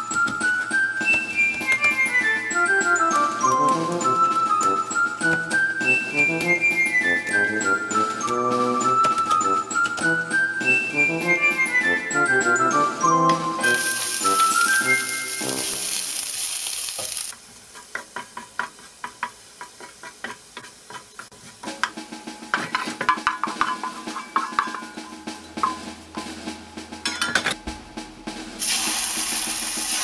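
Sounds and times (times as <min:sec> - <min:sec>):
background music: 0:00.0 - 0:16.3, 0:21.9 - 0:30.0
garlic sizzling in oil: 0:13.6 - 0:21.9, 0:28.6 - 0:30.0
spatula tapping and scraping pan: 0:17.7 - 0:26.3.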